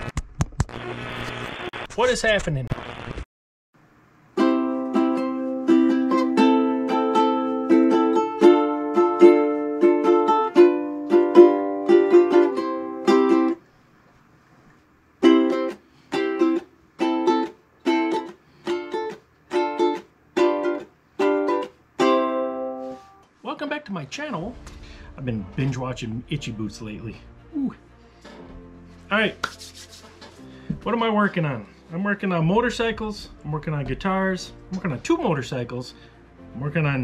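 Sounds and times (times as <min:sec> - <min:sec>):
ukulele strumming chords: 0:04.4 - 0:13.6, 0:15.2 - 0:23.2.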